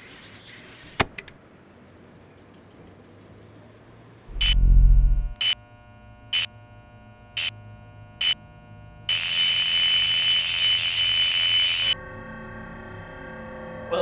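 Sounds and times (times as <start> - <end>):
deep electronic boom: 4.3 - 5.4
short high electronic beeps: 4.3 - 5.4
steady high electronic tone: 4.3 - 5.4.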